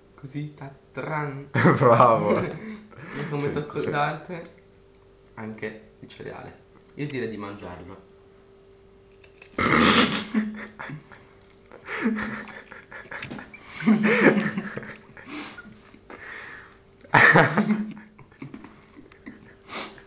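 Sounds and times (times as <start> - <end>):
breathy laughter: 1.6 - 3.6, 9.6 - 20.0.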